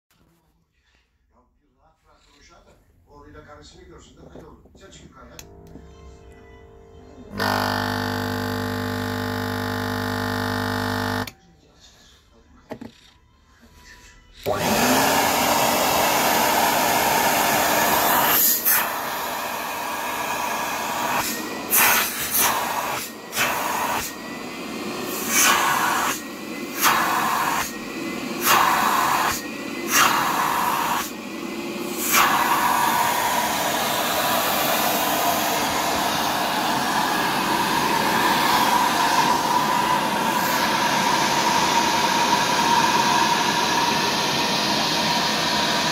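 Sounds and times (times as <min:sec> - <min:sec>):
wet vacuum motor running: 0:07.3 - 0:11.4, 0:14.4 - 0:45.9.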